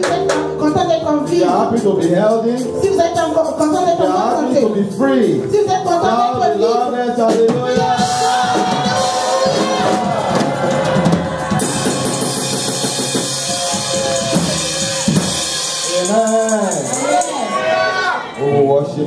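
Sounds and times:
drum kit and cymbals: 0.0 - 17.8
worship band playing: 0.0 - 19.0
congregation singing: 7.5 - 12.6.

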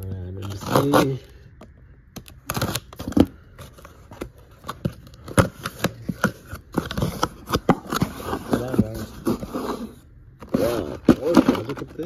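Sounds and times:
cardboard scraping and snapping: 2.2 - 12.0
cardboard box being opened: 2.5 - 12.0.

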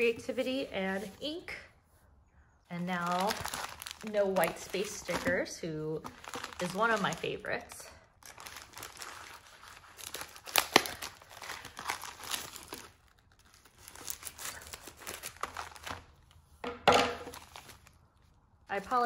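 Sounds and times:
foil envelope crinkling: 2.8 - 16.4, 17.2 - 18.1.

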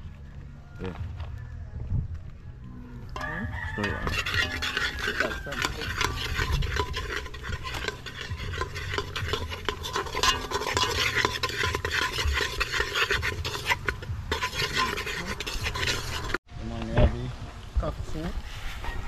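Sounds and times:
metal spoon scraping a pot: 3.2 - 16.4.

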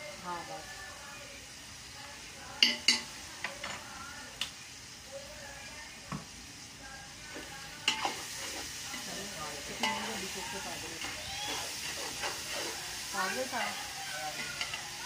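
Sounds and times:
rice sizzling: 0.0 - 15.0
metal spoon scraping a pot: 7.9 - 9.1, 9.7 - 14.9.

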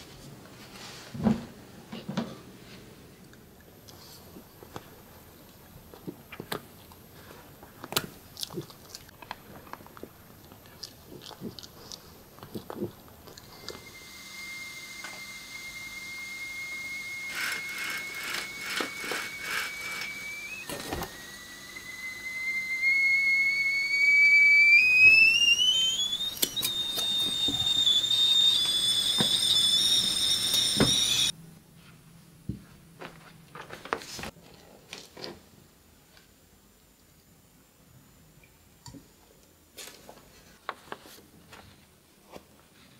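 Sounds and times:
high whistling tone rising in pitch: 13.6 - 31.3.

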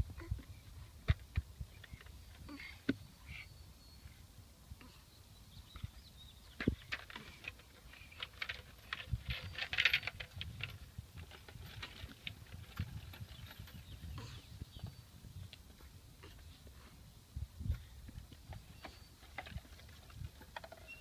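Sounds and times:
swing creaking and clicking: 6.6 - 16.7, 18.1 - 21.0.

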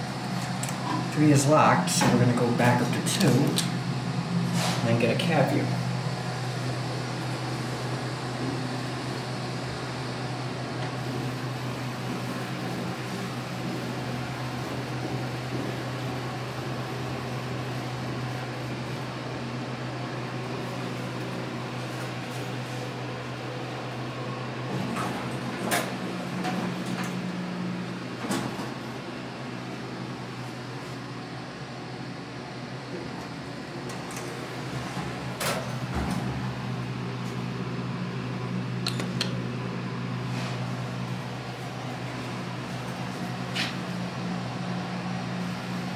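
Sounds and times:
elevator hum: 0.0 - 45.9
sharp clicks: 38.8 - 39.4.

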